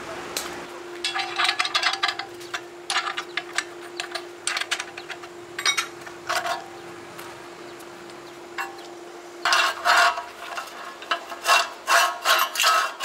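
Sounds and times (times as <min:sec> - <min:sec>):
faint hum: 0:00.0 - 0:12.3
hard objects clicking and scraping: 0:01.0 - 0:06.7, 0:08.6 - 0:13.0.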